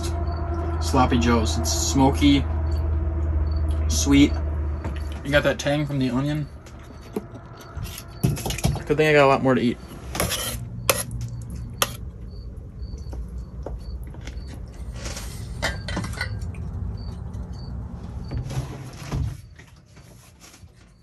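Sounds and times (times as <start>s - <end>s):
low rumble: 0.0s - 8.3s.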